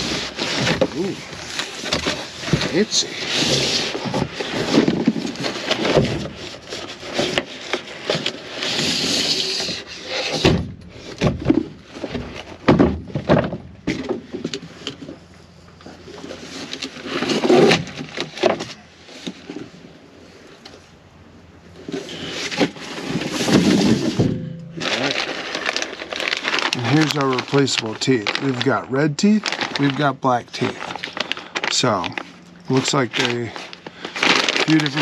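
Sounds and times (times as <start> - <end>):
plastic bag rustling: 0.0 - 10.4, 21.8 - 35.0
cardboard and bag rustling: 0.0 - 15.2, 21.8 - 35.0.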